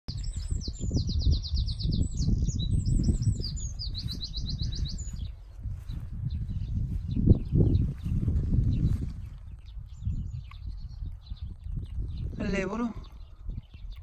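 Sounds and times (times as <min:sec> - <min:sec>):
songbird trilling: 0:00.1 - 0:08.0.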